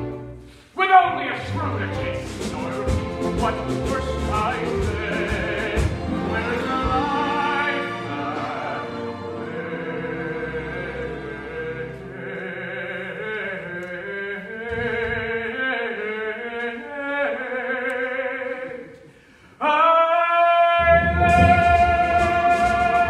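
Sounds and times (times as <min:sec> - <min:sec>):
pit orchestra playing: 0:00.0 - 0:13.1, 0:20.8 - 0:23.0
man singing with vibrato: 0:00.8 - 0:23.0.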